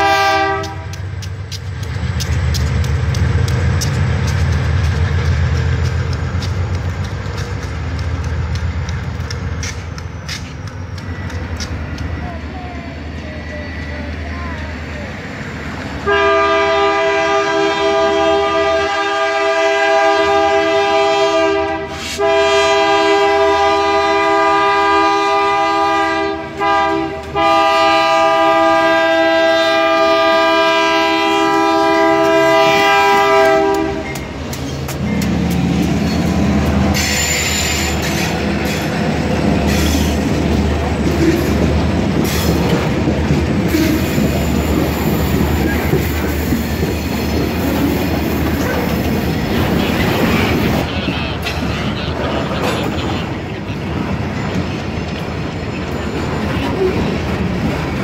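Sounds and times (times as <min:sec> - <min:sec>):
locomotive air horn: 0:00.0 - 0:01.0, 0:16.0 - 0:34.2
clickety-clack over rail joints: 0:00.0 - 0:16.4, 0:17.0 - 0:58.0
wheel-on-rail rumble: 0:00.0 - 0:18.8, 0:23.1 - 0:58.0.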